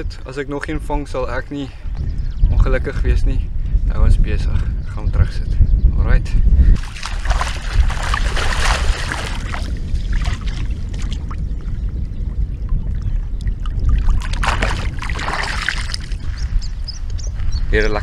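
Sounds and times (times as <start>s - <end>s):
wind buffeting microphone: 0.0s - 18.0s
water splashing: 6.8s - 11.8s, 12.5s - 16.4s.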